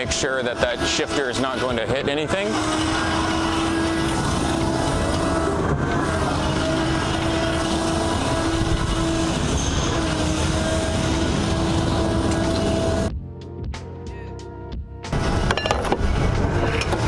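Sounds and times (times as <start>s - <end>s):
concrete pump truck rumble: 0.0s - 13.2s, 15.1s - 17.0s
humming tone: 0.0s - 13.2s.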